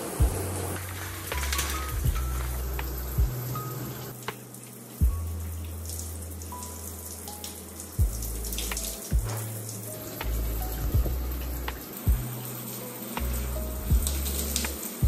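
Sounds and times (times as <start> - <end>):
shower spray hissing: 0.0 - 15.0
soft music with low bass: 0.0 - 15.0
low thumps: 0.2 - 0.7, 1.4 - 3.6, 8.0 - 12.4, 13.2 - 14.4.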